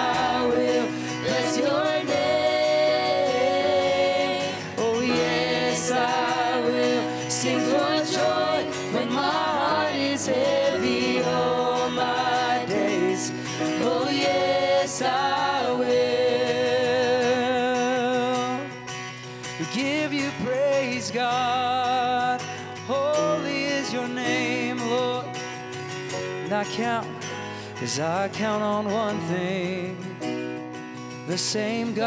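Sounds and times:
singers holding long notes: 0:00.0 - 0:18.3
band backing: 0:00.0 - 0:18.9
strummed acoustic guitar: 0:00.0 - 0:32.0.

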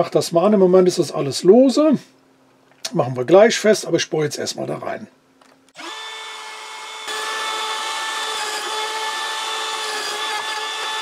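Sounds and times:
router whining: 0:05.7 - 0:11.0
router bit boring into wood: 0:05.8 - 0:11.0.

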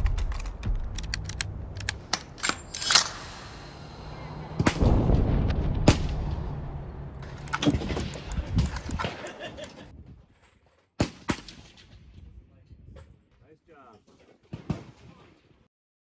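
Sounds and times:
low rumble: 0:00.0 - 0:09.0
gunshots: 0:04.4 - 0:09.2.

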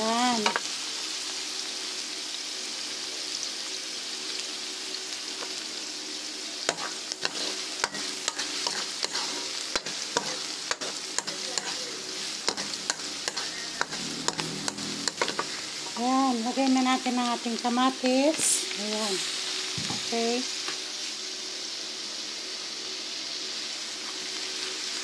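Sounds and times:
garlic and onion sizzling in oil: 0:00.0 - 0:25.0
spatula scraping pan: 0:06.7 - 0:16.1.

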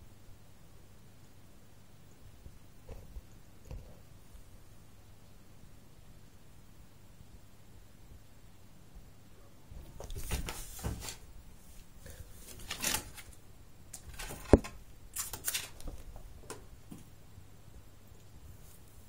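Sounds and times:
cat rustling and scuffling: 0:09.8 - 0:13.4, 0:18.4 - 0:19.0.

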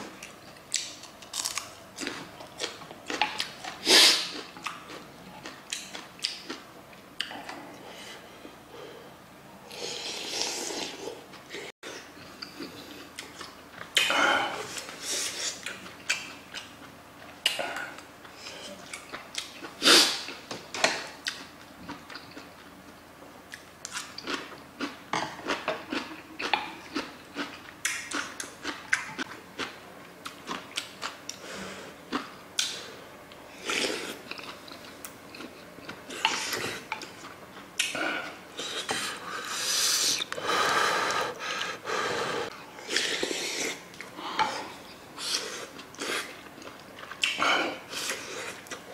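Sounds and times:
chewing: 0:33.6 - 0:40.4, 0:42.8 - 0:48.9.

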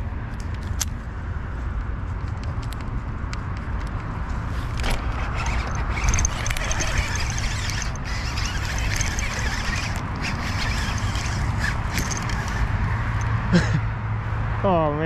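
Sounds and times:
fishing reel clicking: 0:04.8 - 0:13.3.

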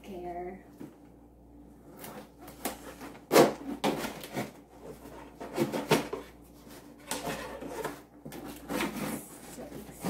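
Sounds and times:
cardboard scraping: 0:02.0 - 0:10.0.

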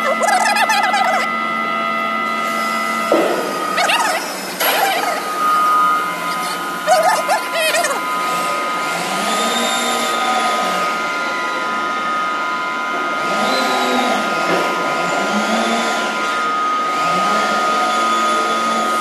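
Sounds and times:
constant high whine: 0:00.0 - 0:15.2.

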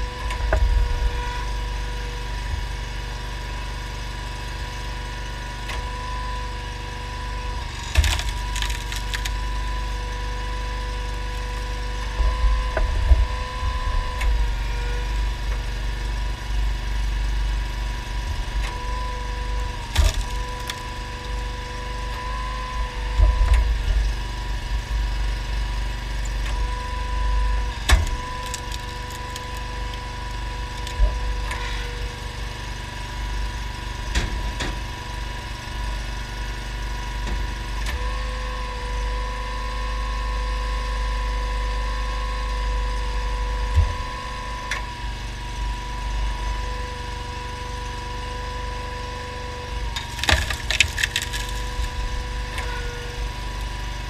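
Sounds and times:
engine humming: 0:00.0 - 0:54.0
logs cracking and splintering: 0:07.7 - 0:09.8, 0:17.6 - 0:26.9, 0:27.7 - 0:36.5, 0:49.8 - 0:54.0.

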